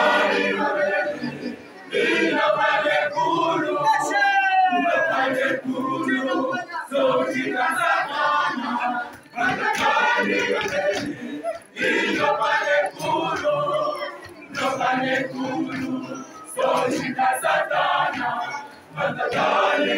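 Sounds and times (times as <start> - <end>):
church choir singing: 0.0 - 19.9.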